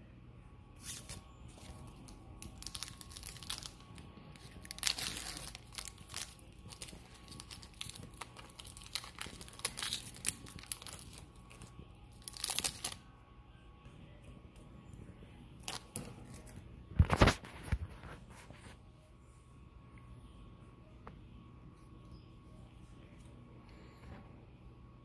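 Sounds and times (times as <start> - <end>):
foil wrapper crinkling and tearing: 0.8 - 13.0, 15.6 - 18.2.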